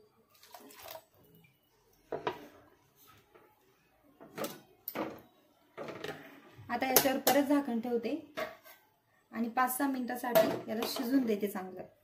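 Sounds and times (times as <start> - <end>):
wooden spatula scraping a pan: 8.4 - 8.9.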